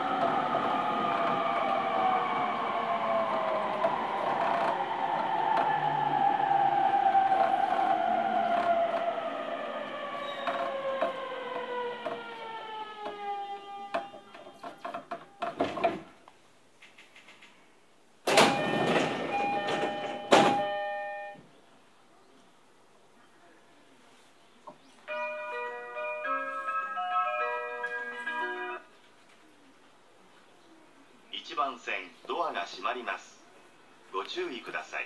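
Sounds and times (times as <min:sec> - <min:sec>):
train knocks: 0:03.3 - 0:16.2, 0:18.2 - 0:21.4
multi-tone door chime: 0:18.3 - 0:21.4, 0:25.1 - 0:28.8.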